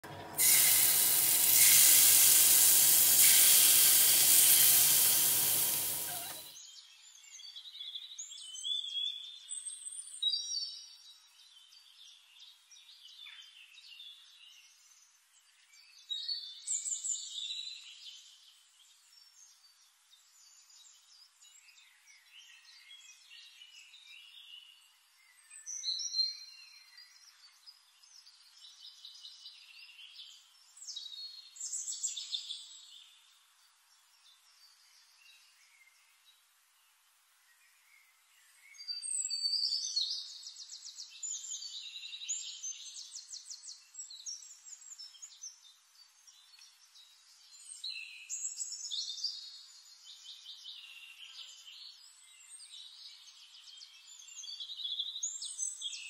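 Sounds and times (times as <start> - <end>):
loud sizzling hiss: 0.0 - 6.5
small birds chirping: 0.0 - 10.7.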